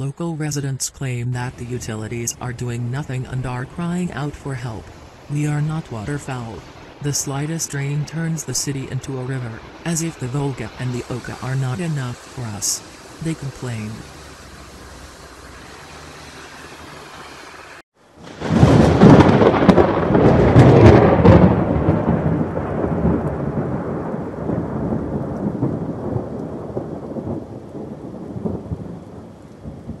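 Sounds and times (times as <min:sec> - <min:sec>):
hiss of rain and running water: 0:01.4 - 0:20.6, 0:21.3 - 0:30.0
heavy rain: 0:01.4 - 0:30.0
thunder roll: 0:01.5 - 0:30.0.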